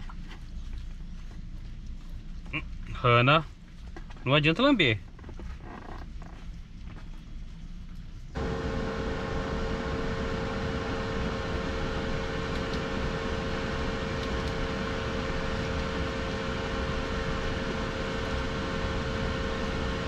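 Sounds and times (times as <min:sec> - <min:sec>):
electric fan humming: 0:08.2 - 0:20.0.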